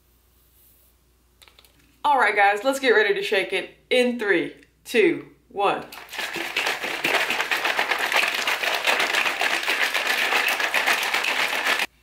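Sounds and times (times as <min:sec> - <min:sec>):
shaker bottle rattling and sloshing: 0:05.9 - 0:12.0.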